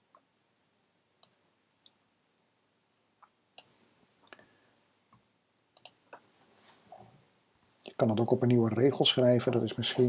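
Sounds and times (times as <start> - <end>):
keyboard and mouse clicks: 5.8 - 6.3.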